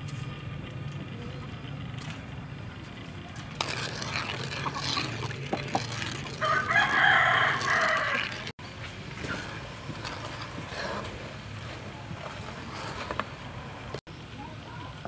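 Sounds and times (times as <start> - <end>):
ladle stirring and knocking in pan: 3.5 - 13.4
rooster crowing: 6.4 - 8.5.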